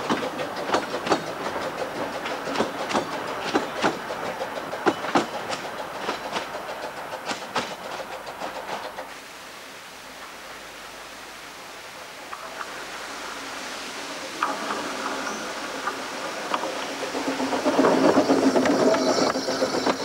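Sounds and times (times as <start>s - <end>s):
train wheels clicking over rail joints: 0.0s - 9.2s, 14.3s - 20.0s
small waterfall rushing: 9.1s - 17.5s.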